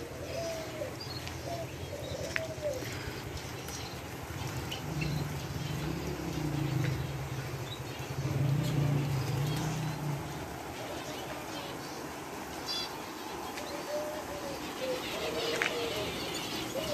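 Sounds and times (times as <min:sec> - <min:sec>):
low steady hum: 0:00.0 - 0:12.7
doves cooing: 0:00.0 - 0:16.9
small birds chirping: 0:00.0 - 0:16.9.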